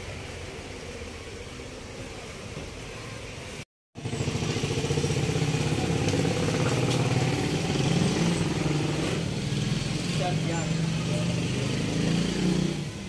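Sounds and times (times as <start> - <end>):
engine idling: 4.0 - 9.6.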